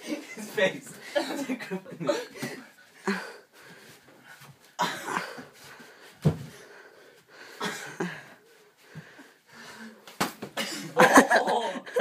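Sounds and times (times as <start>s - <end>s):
heavy breathing: 2.1s - 10.2s.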